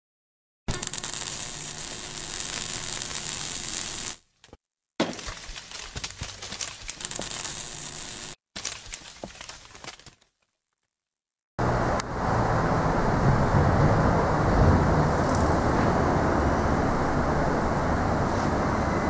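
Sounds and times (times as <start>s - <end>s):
dense crackling noise: 7.0s - 8.4s.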